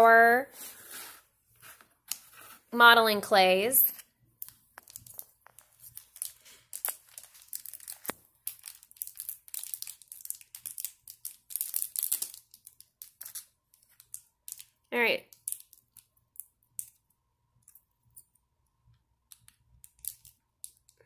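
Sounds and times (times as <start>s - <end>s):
plastic wrapper crinkling and tearing: 4.5s - 17.0s.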